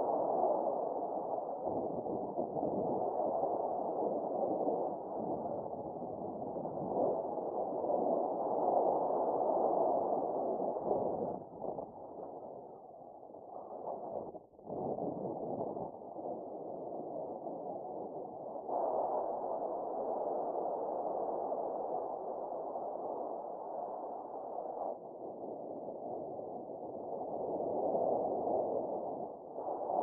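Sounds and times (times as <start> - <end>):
wind rushing over microphone: 0.0 - 12.7, 13.5 - 23.4.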